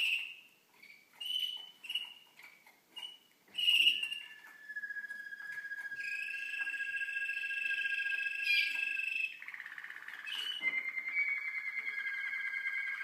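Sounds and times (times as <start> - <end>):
canaries singing: 0.0 - 13.0
fast rolling bird trill: 3.6 - 13.0.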